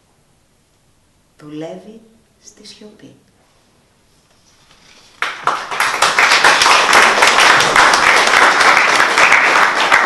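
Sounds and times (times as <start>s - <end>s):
audience clapping: 5.1s - 10.0s.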